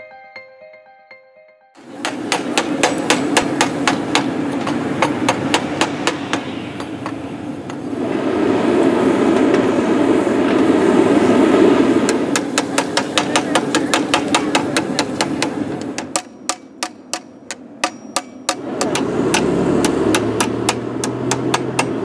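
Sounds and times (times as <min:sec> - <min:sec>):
hammer striking metal: 0:01.8 - 0:07.8, 0:12.1 - 0:22.0
gas forge burner roar: 0:01.8 - 0:22.0.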